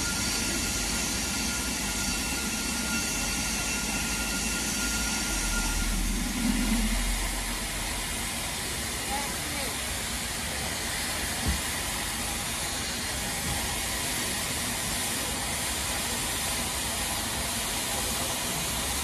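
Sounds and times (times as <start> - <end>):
steam locomotive hissing: 0.0 - 19.0
low rumble: 4.8 - 8.8.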